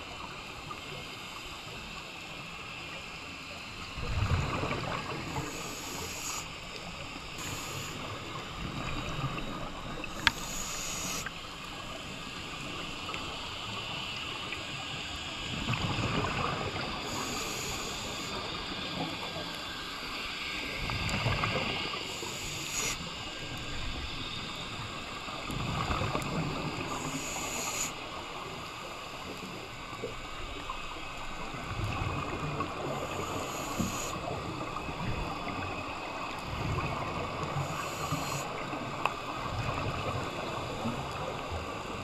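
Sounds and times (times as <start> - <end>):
muffled water rumble: 0.0 - 42.0
diver breathing through regulator: 10.2 - 11.4, 22.1 - 23.0.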